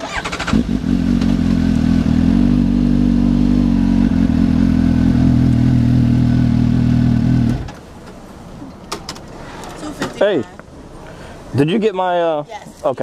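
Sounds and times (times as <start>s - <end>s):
motorcycle engine at low revs: 0.0s - 7.8s.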